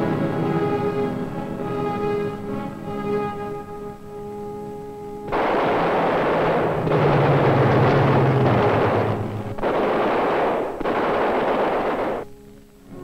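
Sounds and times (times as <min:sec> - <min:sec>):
low drone: 0:00.0 - 0:13.0
machine-gun fire: 0:05.3 - 0:12.3.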